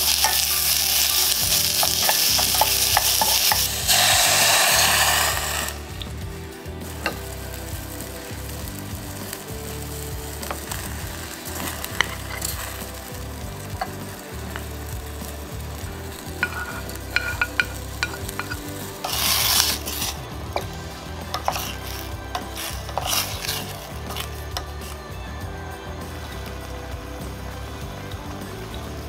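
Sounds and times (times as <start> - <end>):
sauce bubbling in a pot: 0.0 - 25.0
wooden spoon stirring against pot: 0.0 - 25.0
rush of sizzling: 0.0 - 29.0.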